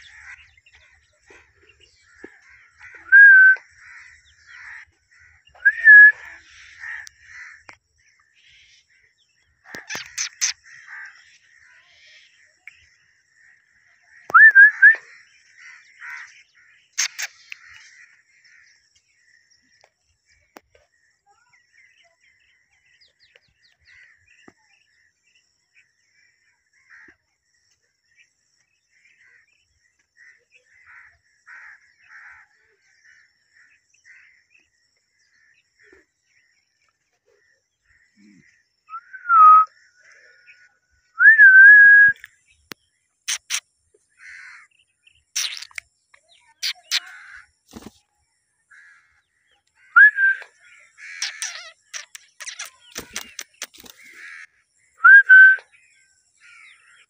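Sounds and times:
soft bird chirps: 0.0 - 57.0
parakeet whistling: 3.1 - 3.6, 5.6 - 6.2, 14.4 - 15.0, 38.9 - 39.7, 50.0 - 50.4, 55.0 - 55.6.

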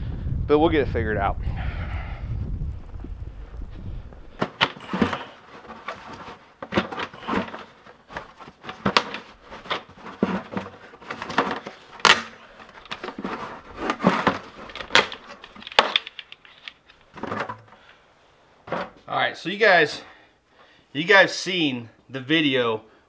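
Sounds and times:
plastic bucket lid snapping: 4.4 - 17.7.

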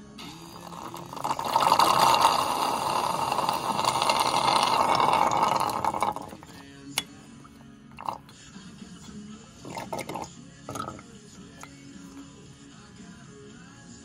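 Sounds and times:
fluid sucked through hose hissing: 0.0 - 6.6, 9.6 - 11.0.

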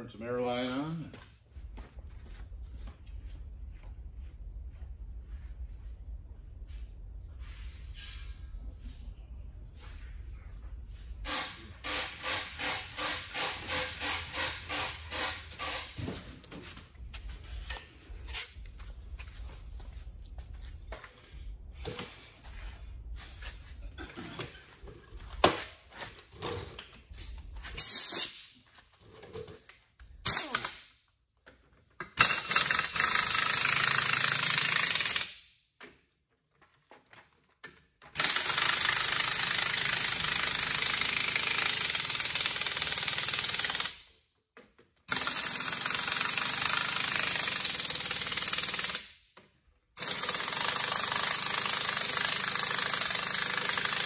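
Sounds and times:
pneumatic impact wrench hammering: 11.2 - 16.3, 27.7 - 28.6, 30.2 - 31.0, 32.0 - 35.5, 38.1 - 44.1, 45.1 - 49.2, 50.0 - 54.0.

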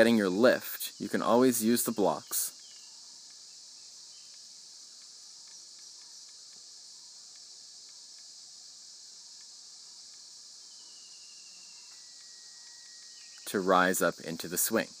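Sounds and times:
high-pitched insect chorus: 0.0 - 15.0
faint ticks: 2.5 - 15.0.

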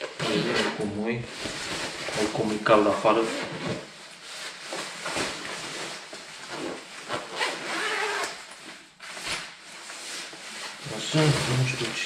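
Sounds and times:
jacket fabric rustling: 0.1 - 12.0
zip sounds: 0.2 - 0.9, 6.5 - 8.4.

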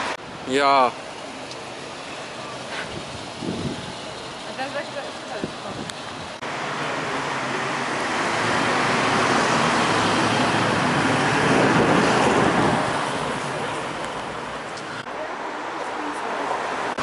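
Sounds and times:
car driving past: 6.4 - 15.0.

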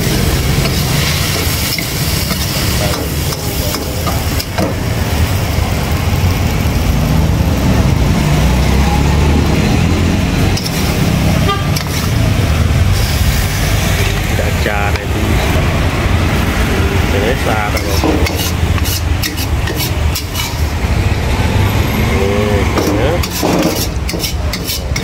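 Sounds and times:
metal spatula scraping wok: 10.3 - 12.4, 17.6 - 20.9, 22.6 - 25.0.

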